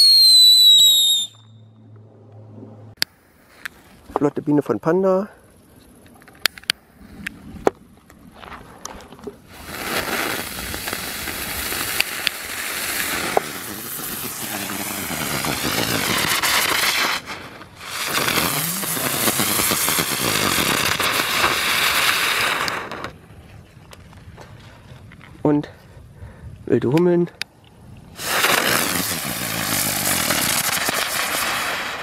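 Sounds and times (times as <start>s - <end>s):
fuse crackle: 5.8s - 23.2s
spinner firework hissing whizz: 9.4s - 23.2s, 28.1s - 32.0s.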